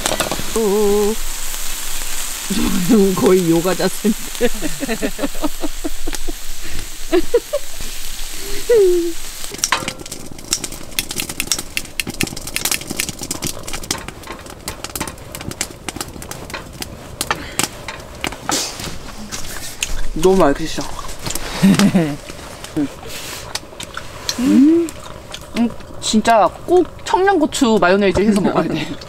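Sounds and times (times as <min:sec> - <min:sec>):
meat sizzling in a pan: 0:00.0 - 0:17.9.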